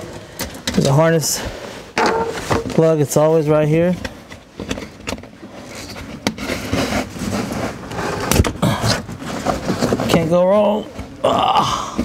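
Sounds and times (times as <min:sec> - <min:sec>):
plastic scraping rustle: 0:04.6 - 0:11.1.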